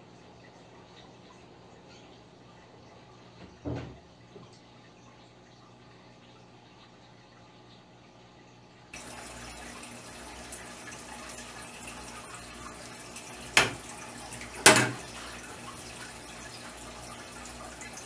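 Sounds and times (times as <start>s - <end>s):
aquarium water trickling: 0.0s - 18.0s
loud splashes in a tank: 9.0s - 18.0s.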